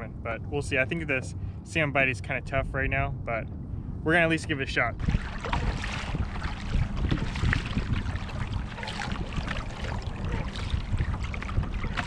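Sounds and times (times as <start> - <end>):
wind buffeting microphone: 0.0 - 12.0
water lapping against hull: 5.0 - 12.0.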